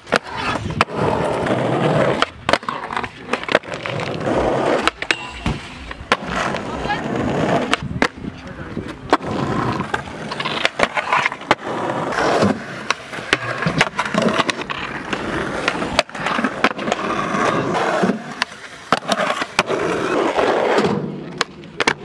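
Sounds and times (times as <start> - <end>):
skateboard trucks grinding concrete: 0.0 - 22.0
skateboard wheels rolling on concrete: 0.0 - 22.0
skateboard tail pops and landings: 9.1 - 22.0.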